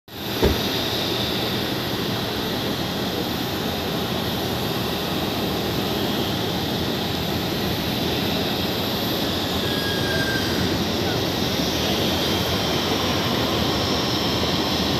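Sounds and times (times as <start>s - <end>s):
jet engines running: 0.1s - 14.9s.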